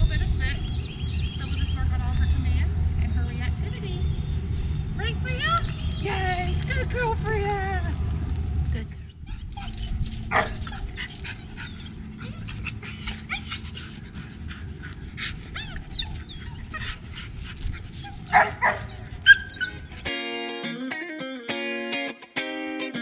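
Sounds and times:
dogs whining and yipping: 8.9s - 20.1s
dogs barking: 9.0s - 20.1s.

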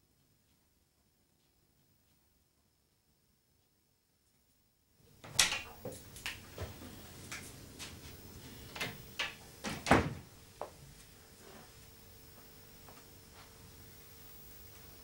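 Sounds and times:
glass door opening and shutting: 8.7s - 10.3s.

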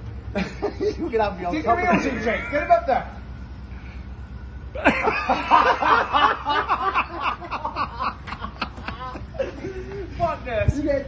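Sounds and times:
men laughing: 0.3s - 2.9s, 4.7s - 10.5s.

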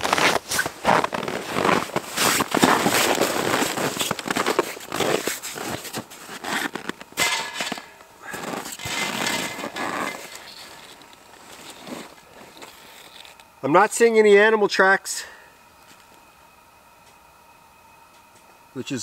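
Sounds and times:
boots crunching in snow: 0.0s - 13.4s
clothing rustling: 0.0s - 13.4s.

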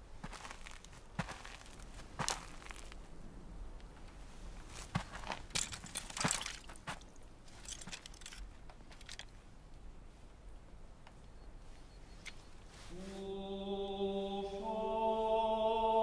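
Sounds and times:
footsteps in dry grass: 0.0s - 3.2s, 4.2s - 8.1s
sharp crunches: 4.8s - 8.4s.

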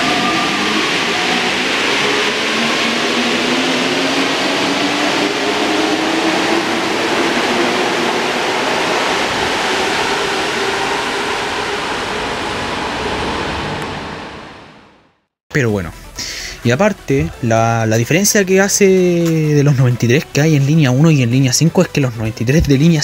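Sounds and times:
train rolling: 0.0s - 15.1s
train motor whine: 0.0s - 15.2s.

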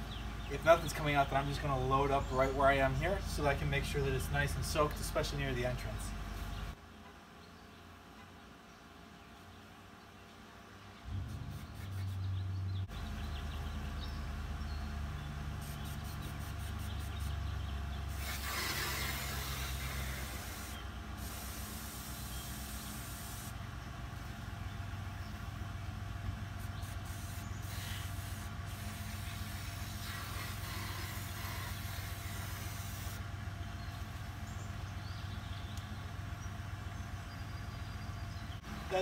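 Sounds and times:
aerosol spray hissing: 15.6s - 17.4s, 18.1s - 23.6s, 26.6s - 33.2s.

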